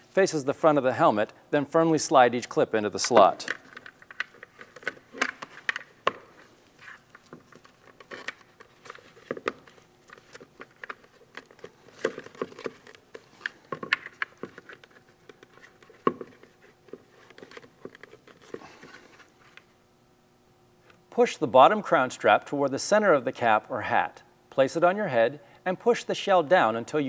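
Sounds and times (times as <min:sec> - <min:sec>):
plastic clicks and rattles: 0:03.1 - 0:06.2, 0:07.2 - 0:18.6.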